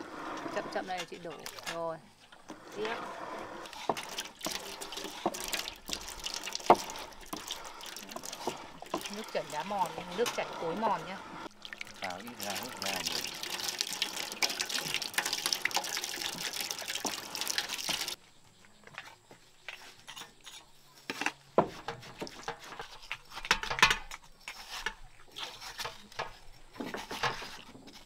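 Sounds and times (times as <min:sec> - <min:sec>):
juice pouring and splashing: 0:00.0 - 0:18.2.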